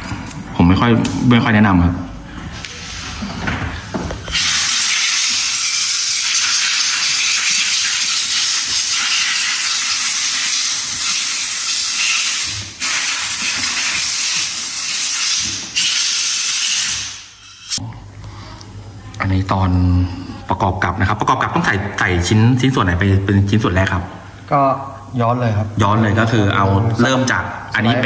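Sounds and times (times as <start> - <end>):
compressed air blow gun hissing: 4.3 - 17.8.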